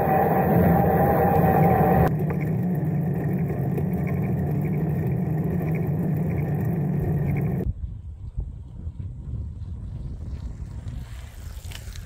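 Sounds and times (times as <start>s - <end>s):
bicycle tyres rolling on asphalt: 0.0s - 7.7s, 8.5s - 12.0s
wind buffeting microphone: 4.4s - 12.0s.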